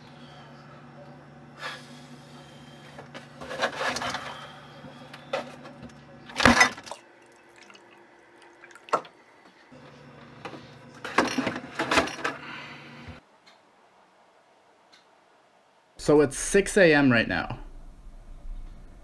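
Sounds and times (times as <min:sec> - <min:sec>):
refrigerator hum: 0:00.0 - 0:13.2, 0:16.0 - 0:19.0
milk pouring into a mug: 0:07.0 - 0:09.0.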